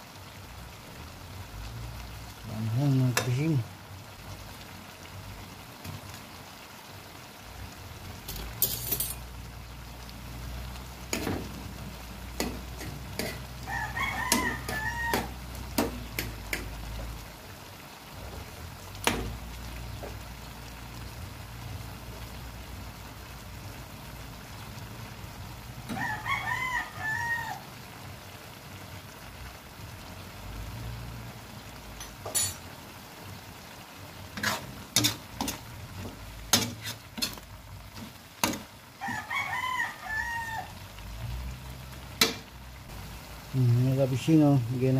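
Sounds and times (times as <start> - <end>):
pan of food cooking: 0.0 - 44.9
rooster crowing: 13.6 - 15.6, 25.8 - 27.8, 39.0 - 41.0.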